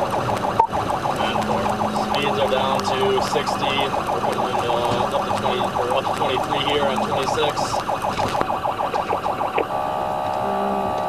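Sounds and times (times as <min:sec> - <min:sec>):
police siren warbling: 0:00.0 - 0:11.0.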